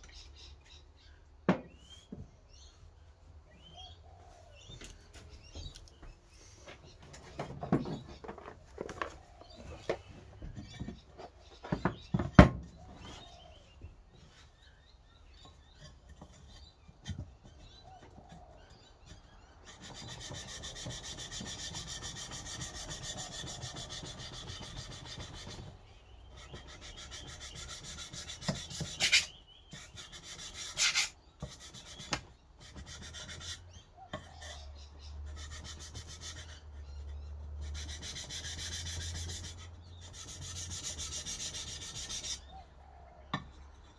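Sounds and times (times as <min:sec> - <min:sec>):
knife scraping on sandpaper: 0:26.4 - 0:34.6, 0:37.7 - 0:42.4.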